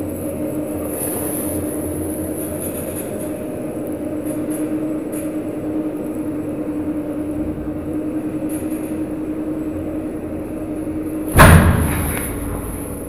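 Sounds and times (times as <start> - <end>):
constant hum: 0.0 - 13.0
lift car rumbling: 0.0 - 13.0.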